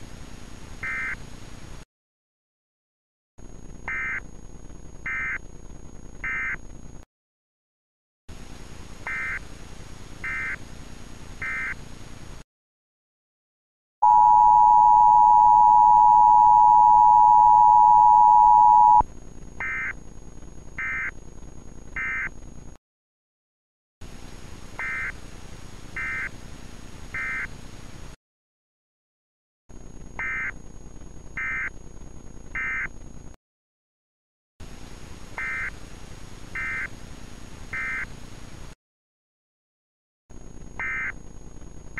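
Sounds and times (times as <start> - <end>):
two-tone attention signal: 14.0 - 19.0.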